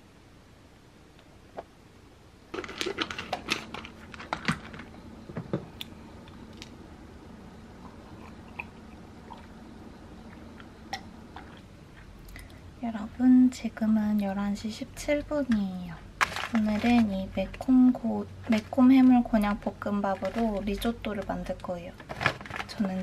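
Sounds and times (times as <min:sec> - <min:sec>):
low steady hum: 0:00.0 - 0:23.0
pills rattling in containers: 0:02.6 - 0:04.9.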